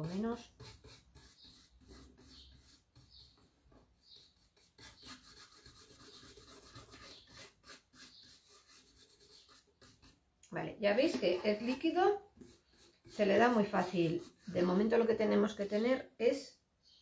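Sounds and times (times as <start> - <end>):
paintbrush strokes: 0.0 - 10.2, 10.9 - 15.2.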